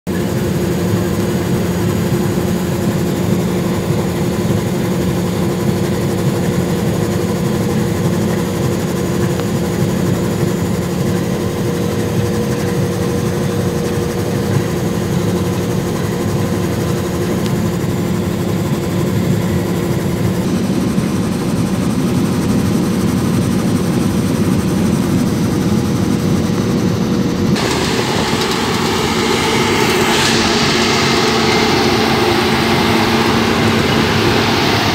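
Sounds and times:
combine harvester hum: 0.1 - 34.9
combine harvesting outside: 0.1 - 34.9.

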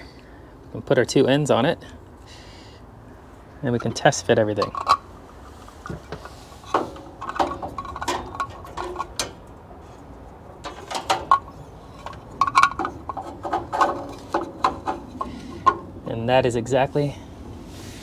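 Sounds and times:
plastic fittings clicking and knocking: 10.8 - 15.9.

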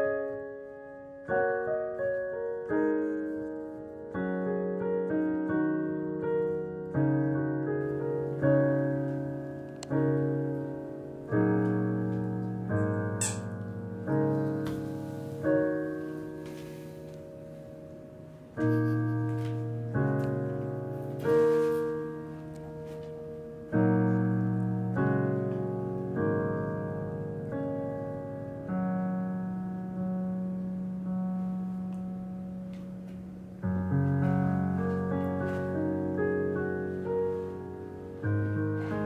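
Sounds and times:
slow piano chords: 0.0 - 39.0.

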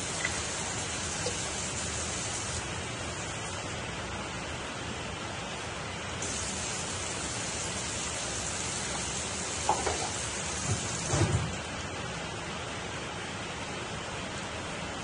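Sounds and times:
water pouring into pot: 6.2 - 10.4.

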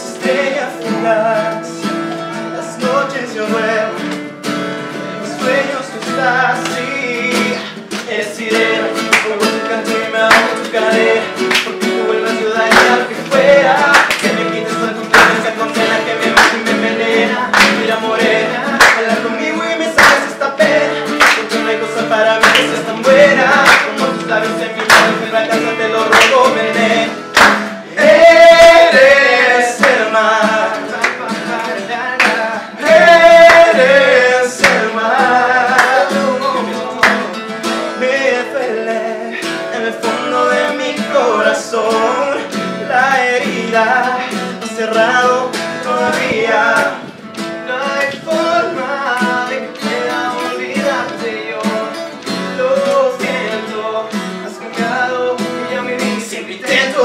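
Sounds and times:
acoustic guitars strummed: 0.0 - 57.0
men singing: 0.0 - 57.0
hand claps: 4.0 - 4.4, 5.5 - 37.8, 45.6 - 57.0.

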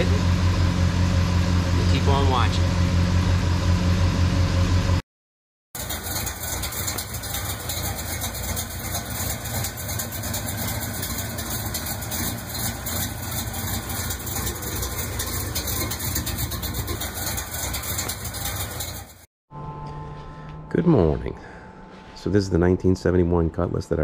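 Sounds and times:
car engine idling: 5.8 - 19.3.

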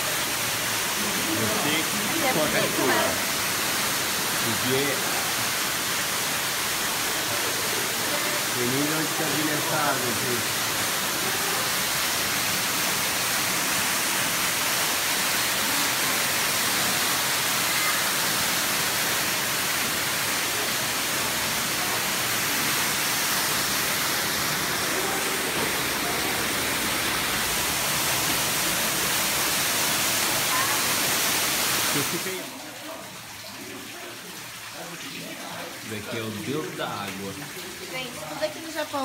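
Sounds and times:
waterfall splashing onto rock: 0.0 - 39.0.

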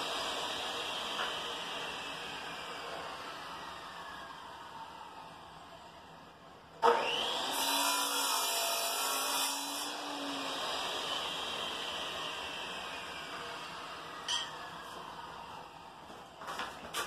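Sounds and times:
power tool motor whine: 0.0 - 5.4, 6.8 - 8.0, 9.9 - 15.9.

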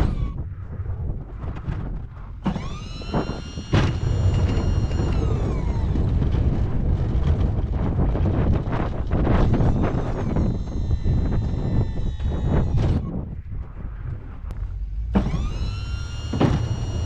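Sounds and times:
high whine: 0.0 - 17.0
low engine rumble: 0.0 - 17.0
sharp clunks: 15.1 - 17.0.

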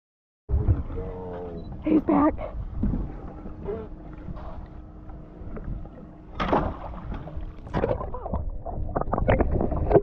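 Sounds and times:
wind rumble on microphone: 0.5 - 4.7, 6.7 - 10.0
water sloshing against boat hull: 0.5 - 10.0.

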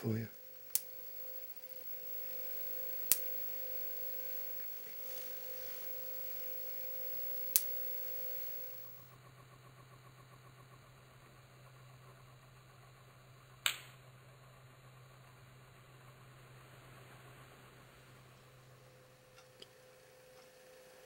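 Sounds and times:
sharp electric spark snaps: 0.0 - 9.1.

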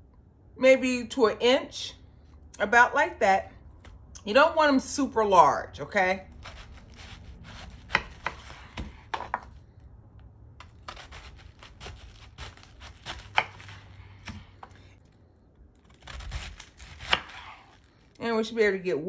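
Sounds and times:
knife slicing cabbage: 6.3 - 9.5, 10.6 - 14.9, 15.8 - 18.1.

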